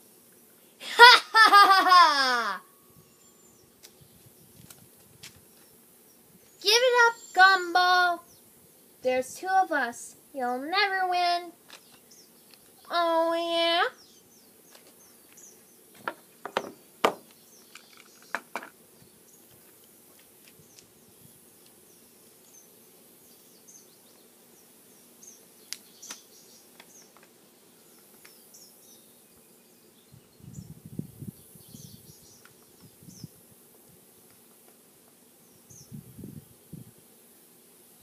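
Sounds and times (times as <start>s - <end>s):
faint bird chirps: 5.5s - 9.2s
sharp clicks and knocks: 16.0s - 18.8s.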